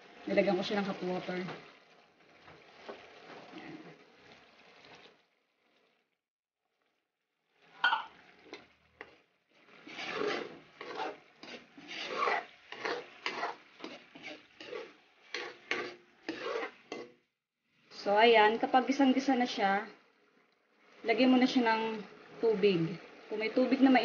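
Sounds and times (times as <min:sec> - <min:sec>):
metal ladle scraping wok: 0:07.6 - 0:17.2.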